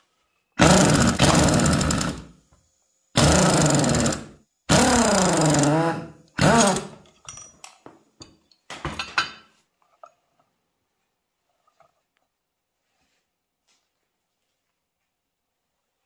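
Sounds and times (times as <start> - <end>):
power tool motor under load: 0.6 - 2.3, 3.2 - 7.0.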